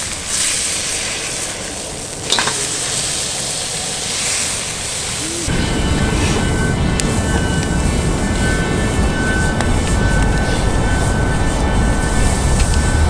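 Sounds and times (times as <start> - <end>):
meat sizzling in a skillet: 0.0 - 5.5.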